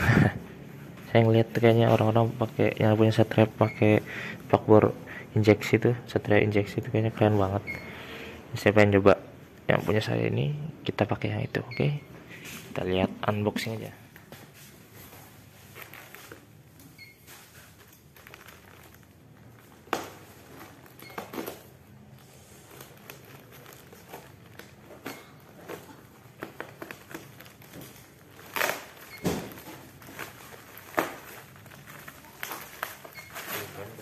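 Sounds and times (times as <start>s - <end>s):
plastic packaging crinkling: 15.2s - 34.0s.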